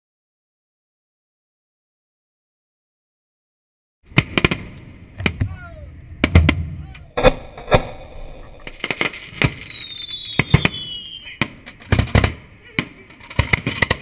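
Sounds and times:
fireworks bangs and cracks: 4.1 - 14.0
firework hiss: 8.6 - 13.2
falling whistle: 9.4 - 11.4.

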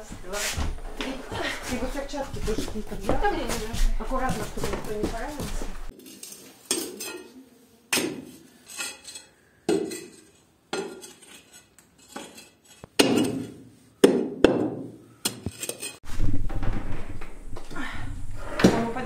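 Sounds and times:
metal bar knocking masonry wall: 12.1 - 17.2.

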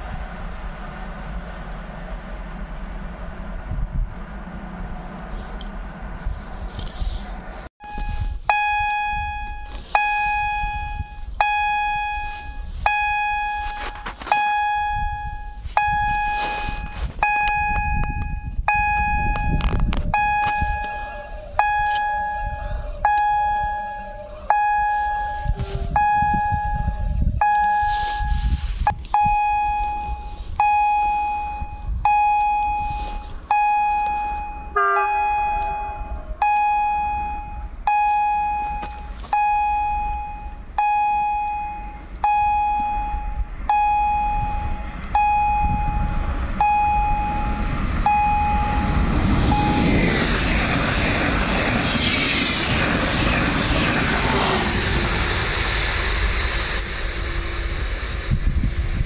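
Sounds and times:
low rumble: 0.0 - 59.0
level crossing warning bell: 7.8 - 51.4.

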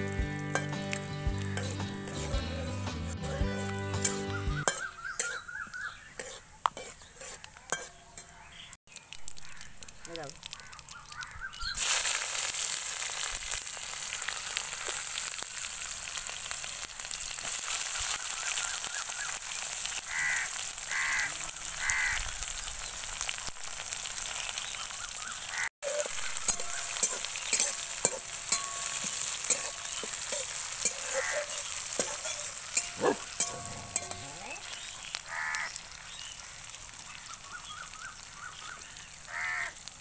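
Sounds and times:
onions sizzling in hot oil: 0.0 - 40.0
metal spatula scraping wok: 0.5 - 8.6, 25.8 - 34.8.

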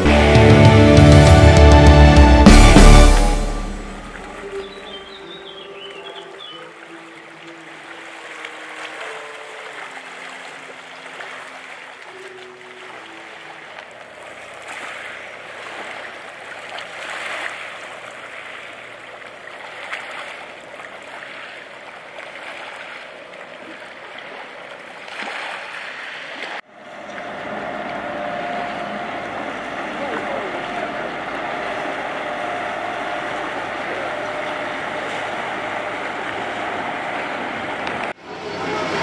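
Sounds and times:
music notes: 0.0 - 5.6
waves lapping on rocks: 7.2 - 26.7.

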